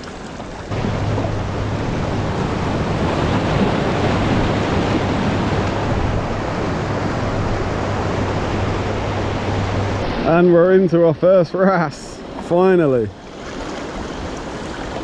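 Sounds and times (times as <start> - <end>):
waves breaking over rocks: 0.0 - 15.0.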